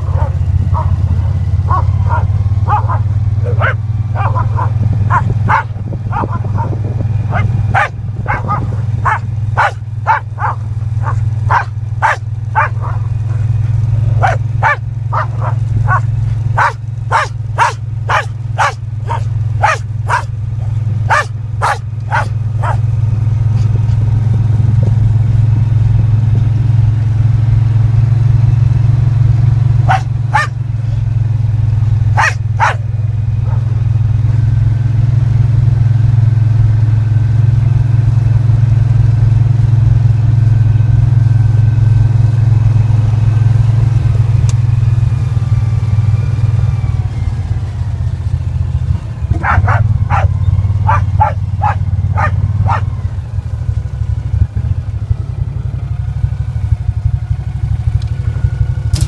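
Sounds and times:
dog barking: 0.0 - 22.9, 29.8 - 30.6, 32.1 - 33.7, 49.3 - 53.0
utility vehicle engine running: 0.0 - 59.0.

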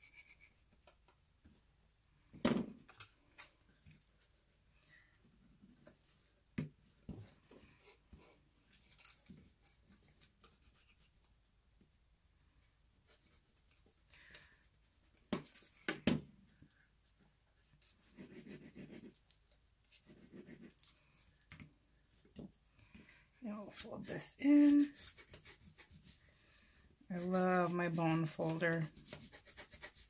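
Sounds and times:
scratching and rubbing of cardstock: 23.6 - 26.2, 27.2 - 30.0.

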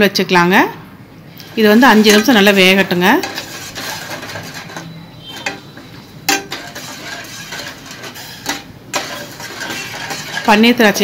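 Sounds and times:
metal spoon scraping saucepan: 1.4 - 11.0
spoon clinking on pot: 3.2 - 10.6.

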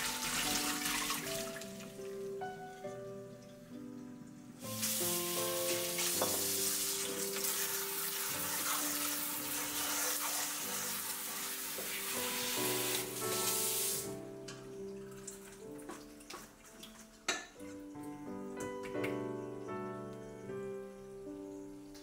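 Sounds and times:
tap spraying water on fruit: 0.0 - 1.8, 4.6 - 14.7, 15.6 - 17.6.

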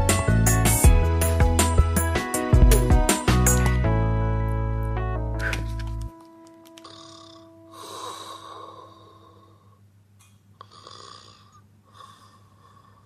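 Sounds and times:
person snoring: 6.8 - 9.8, 10.6 - 13.0.

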